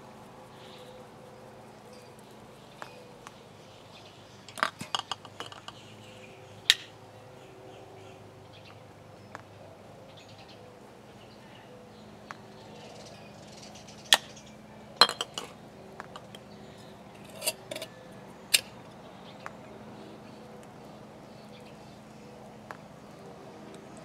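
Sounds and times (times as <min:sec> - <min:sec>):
glass jars clinking: 0:04.5 - 0:05.8, 0:15.0 - 0:15.6, 0:17.2 - 0:17.9.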